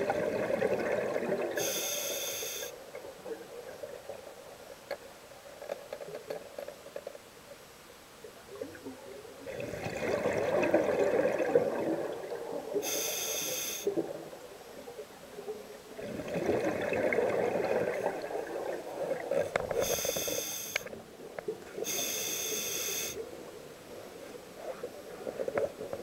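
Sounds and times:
exhaled bubbles underwater: 0.0 - 1.8, 9.4 - 12.9, 15.9 - 20.1
regulator inhale hiss: 1.6 - 2.7, 12.8 - 13.9, 19.8 - 20.9, 21.8 - 23.2.

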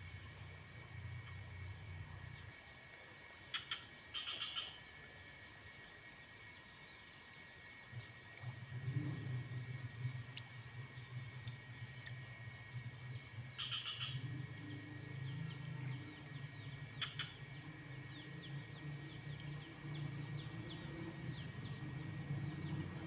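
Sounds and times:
high-pitched insect chorus: 0.0 - 23.0
short insect chirps: 0.0 - 23.0
low hum: 8.4 - 23.0.

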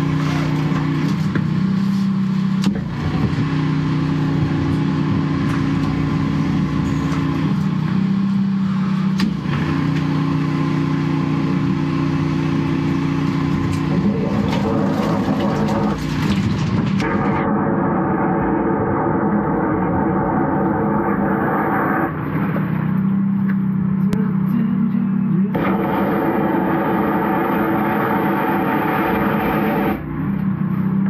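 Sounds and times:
engine and pump running: 0.0 - 31.0
water jet blasting through pipe: 12.1 - 22.9, 25.6 - 30.0.

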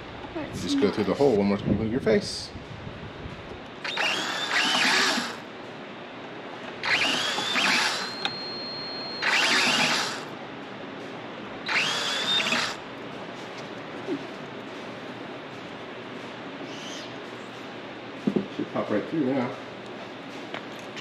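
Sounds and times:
cordless drill spinning: 3.8 - 5.4, 6.8 - 8.4, 9.2 - 10.3, 11.7 - 12.8.

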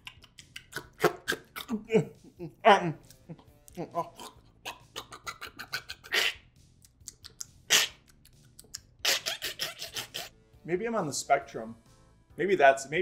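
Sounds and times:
man chewing noisily: 0.0 - 1.8, 3.2 - 9.0.

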